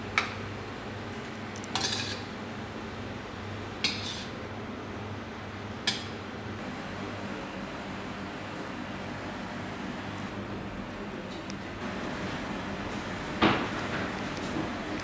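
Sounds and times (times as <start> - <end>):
metal ladle scraping steel pot: 1.8 - 2.3.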